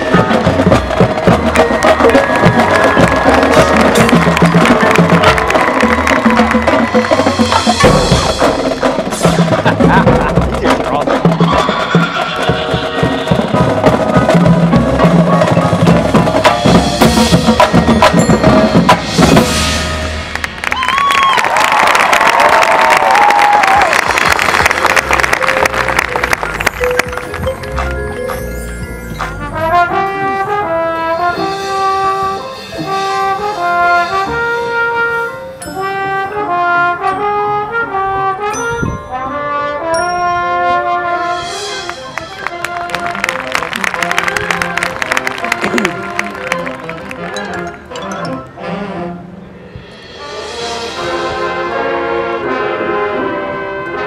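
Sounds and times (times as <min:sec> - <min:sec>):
crowd cheering: 0:00.0 - 0:08.2, 0:20.3 - 0:27.9, 0:41.7 - 0:47.7
marching band playing: 0:00.0 - 0:54.0
high ringing notes: 0:25.5 - 0:37.8, 0:38.5 - 0:42.0
brass section playing chords: 0:27.7 - 0:54.0.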